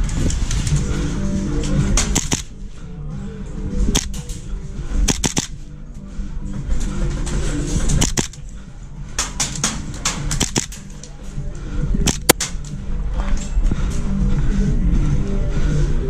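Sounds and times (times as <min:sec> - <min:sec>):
background music with low beat: 0:00.0 - 0:16.0
airsoft guns firing: 0:02.0 - 0:02.5, 0:05.1 - 0:05.6, 0:08.0 - 0:08.4, 0:09.2 - 0:10.9.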